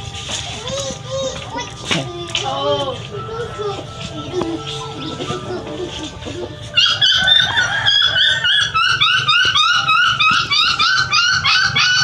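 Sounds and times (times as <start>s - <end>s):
puppy whining and yelping: 6.1s - 12.0s.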